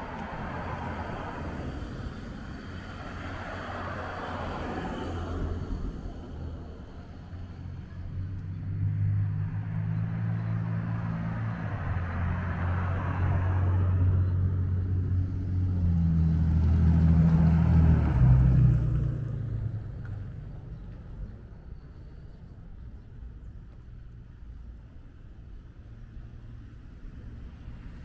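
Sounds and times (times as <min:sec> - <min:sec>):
cars passing: 0:00.0 - 0:28.0
loud car engine: 0:07.8 - 0:20.6.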